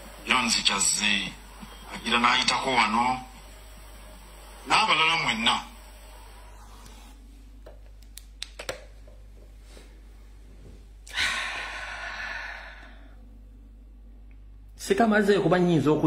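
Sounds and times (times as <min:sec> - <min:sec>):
steady low hum: 0:00.0 - 0:16.0
person sighing: 0:11.1 - 0:13.2.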